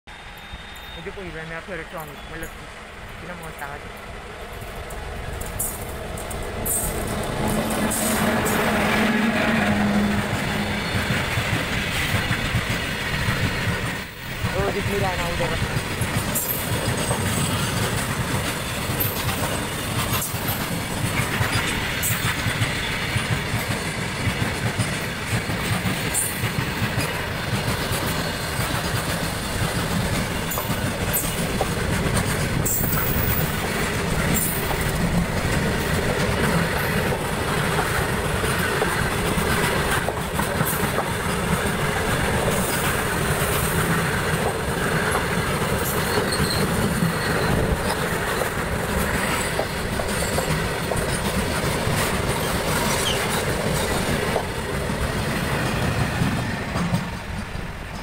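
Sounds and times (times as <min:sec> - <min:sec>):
steel wheels rumbling on rails: 0:00.1 - 0:58.0
wheels clattering over rail joints: 0:15.6 - 0:58.0.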